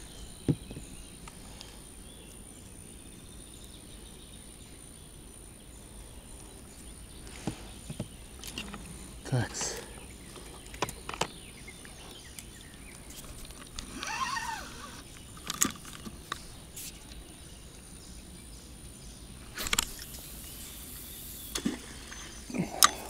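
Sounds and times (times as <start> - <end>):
rising and falling call: 13.9 - 15.0.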